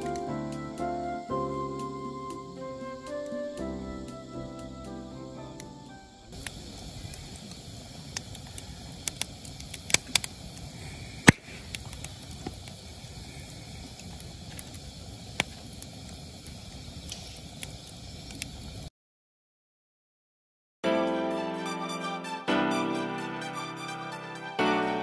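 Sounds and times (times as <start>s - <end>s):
fire crackling and popping: 0.0s - 18.9s.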